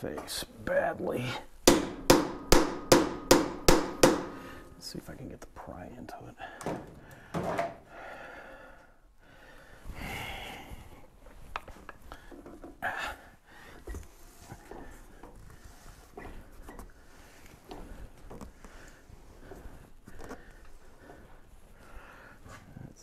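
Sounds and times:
hard breathing: 4.2s - 4.8s, 6.4s - 11.2s, 11.9s - 23.0s.

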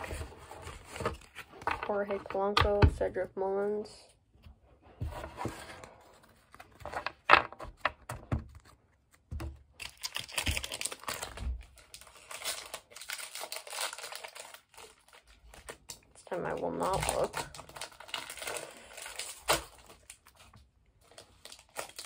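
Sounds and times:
card pack wrapper crinkling: 8.6s - 22.0s
wrapper tearing open: 9.8s - 16.0s, 16.9s - 20.4s, 21.0s - 22.0s.

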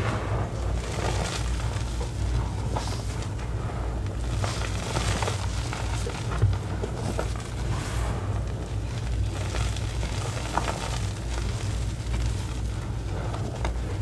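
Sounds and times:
hands crunching powder: 0.0s - 14.0s
low hum: 0.0s - 14.0s.

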